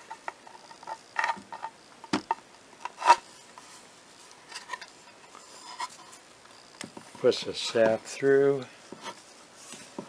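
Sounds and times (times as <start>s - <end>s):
scrape: 3.0s - 3.9s, 4.5s - 6.2s, 9.0s - 10.0s.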